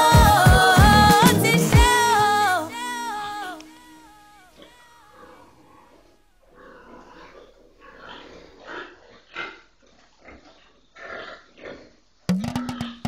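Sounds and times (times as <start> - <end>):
pigs grunting: 4.6 - 12.0.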